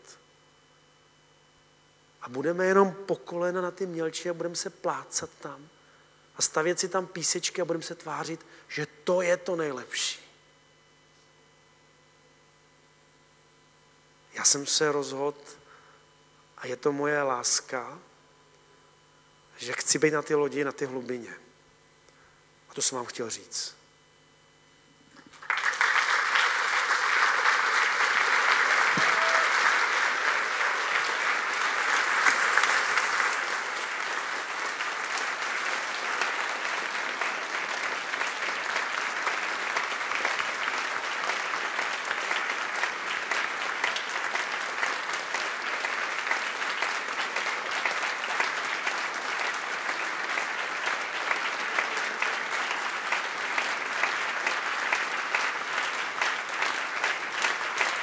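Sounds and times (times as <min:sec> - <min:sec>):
large audience applauding: 0:25.2 - 0:58.0.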